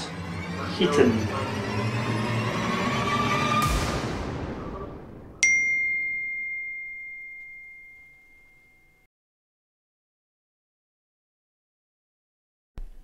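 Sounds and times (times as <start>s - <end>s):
tense background music: 0.0s - 5.4s
low boom: 3.6s - 5.4s
bell-like ding: 5.4s - 9.1s.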